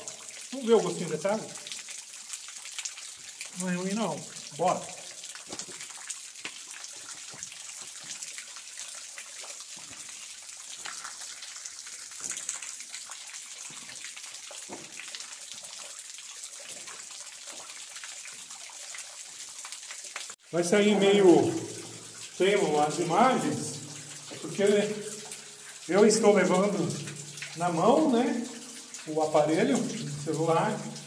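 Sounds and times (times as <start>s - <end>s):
water drips tapping: 0.0s - 31.0s
water splashing onto stones: 0.0s - 31.0s.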